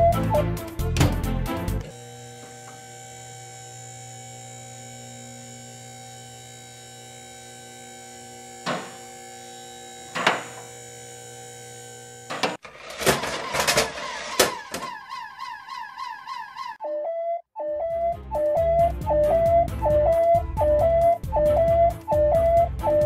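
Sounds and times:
small electric motor humming: 0:01.9 - 0:13.0.

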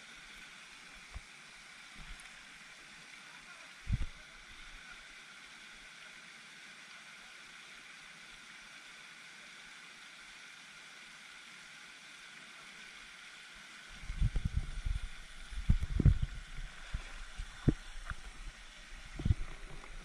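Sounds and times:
fountain spray hissing on water: 0:00.0 - 0:20.0
low thumps and knocks: 0:14.0 - 0:18.2, 0:19.1 - 0:20.0.

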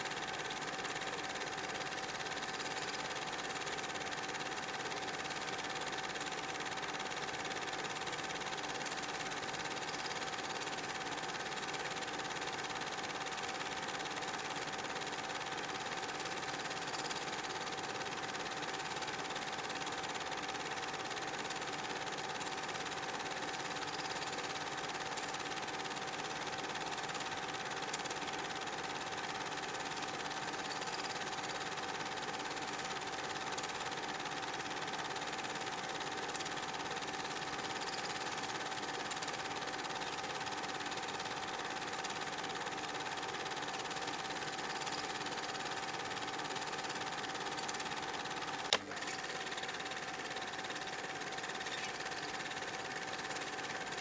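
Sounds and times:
sharp click: 0:48.7 - 0:49.2.

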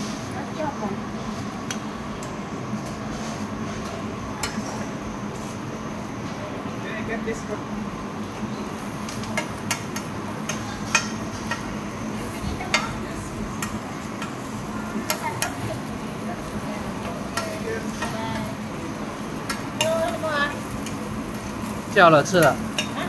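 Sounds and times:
steady low hum: 0:00.0 - 0:23.0
omelette sizzling in hot oil: 0:08.5 - 0:23.0.

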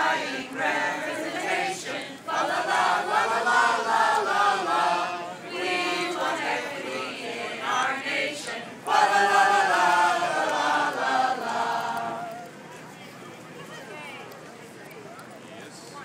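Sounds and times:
group of carolers singing: 0:00.0 - 0:12.6.

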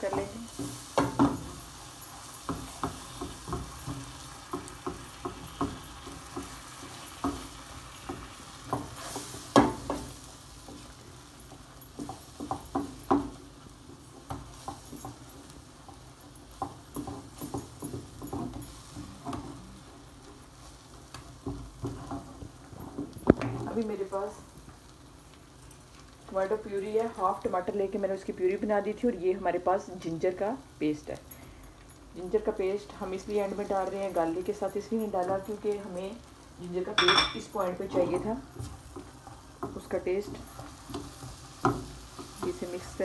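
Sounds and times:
spatula scraping frying pan: 0:00.0 - 0:11.0
sauce sizzling: 0:00.0 - 0:43.0.

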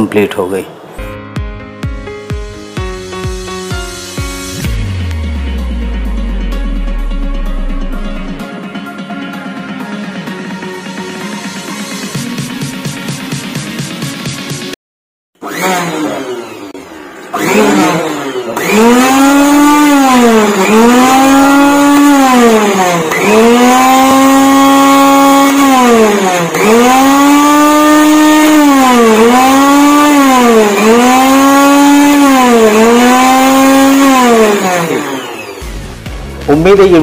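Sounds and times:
motor spinning up and down: 0:15.4 - 0:36.0.

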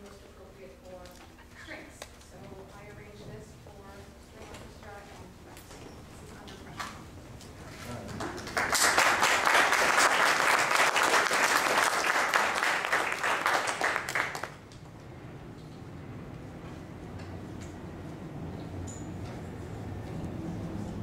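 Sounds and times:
audience applauding: 0:08.1 - 0:14.7.

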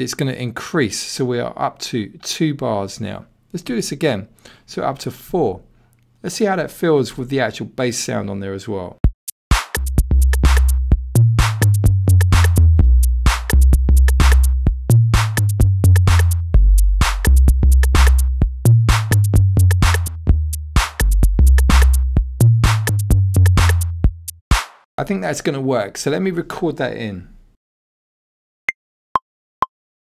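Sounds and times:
low kick bassline: 0:09.0 - 0:24.4
drum machine beat: 0:09.0 - 0:24.8.

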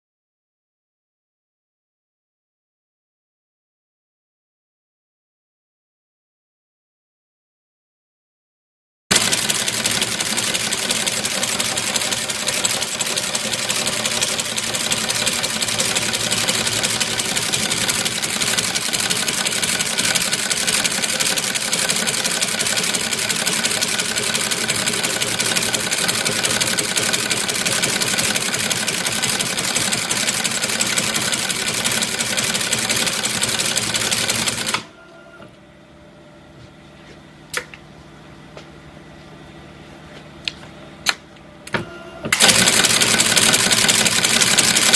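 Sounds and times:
tufting machine clatter: 0:42.3 - 0:44.9.

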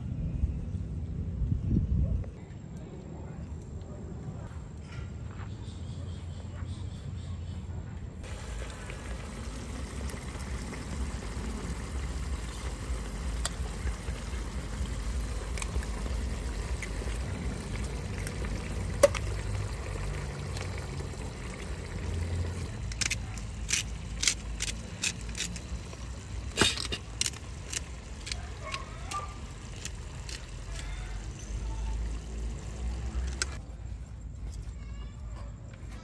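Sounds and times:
gas burner rushing: 0:08.2 - 0:33.6
sauce bubbling in a pan: 0:08.2 - 0:33.6
sharp clicks and crackles: 0:22.6 - 0:32.3, 0:33.1 - 0:33.6.

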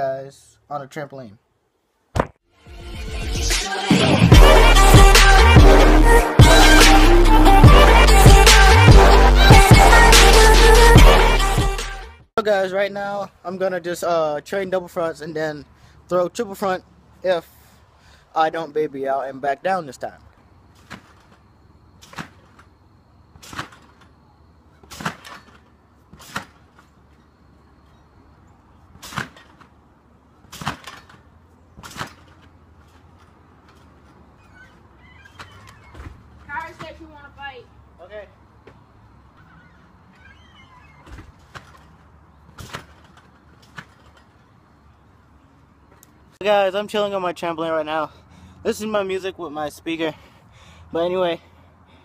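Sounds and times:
feet thumping on trampoline: 0:20.7 - 0:21.4, 0:22.0 - 0:22.7, 0:23.3 - 0:24.1, 0:24.7 - 0:27.2, 0:28.9 - 0:29.8, 0:30.4 - 0:37.0, 0:40.4 - 0:44.4.

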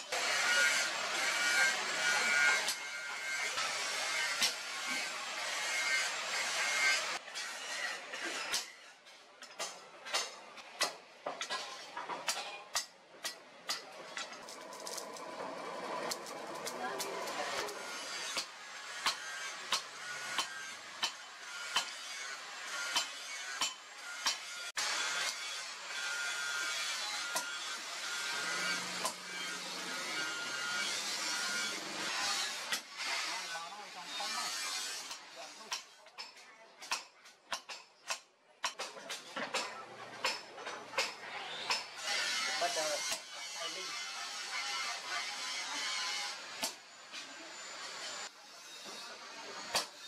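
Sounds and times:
hammer striking chisel on metal: 0:17.0 - 0:22.0, 0:22.6 - 0:24.5, 0:35.1 - 0:41.9
hammer striking steel blade: 0:17.0 - 0:22.0, 0:22.8 - 0:24.5.

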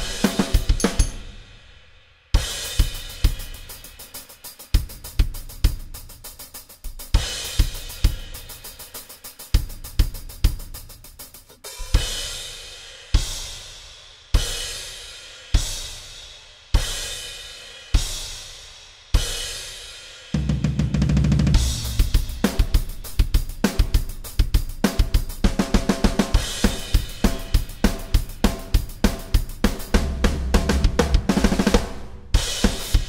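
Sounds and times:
electronic drum kit playing: 0:00.0 - 0:01.5, 0:04.7 - 0:12.4, 0:20.4 - 0:33.0
fast snare fill: 0:20.9 - 0:33.0.

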